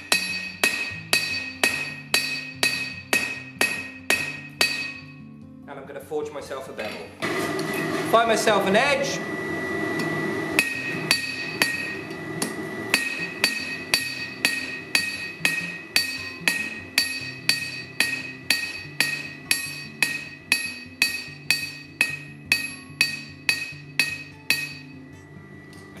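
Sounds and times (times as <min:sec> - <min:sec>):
hammer striking metal on anvil: 0:00.0 - 0:05.2, 0:10.6 - 0:25.0
faint background music: 0:00.0 - 0:07.2, 0:13.0 - 0:26.0.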